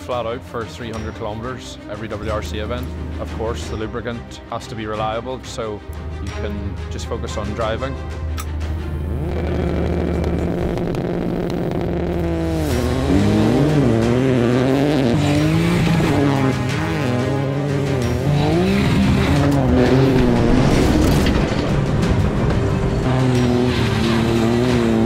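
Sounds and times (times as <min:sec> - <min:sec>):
music: 0:00.0 - 0:25.0
rally car engine revving: 0:08.9 - 0:25.0.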